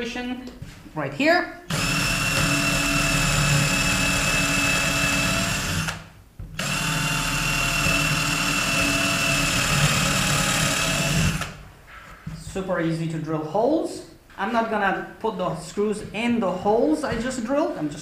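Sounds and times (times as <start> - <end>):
cordless drill boring into wood: 1.7 - 6.0, 6.6 - 11.6.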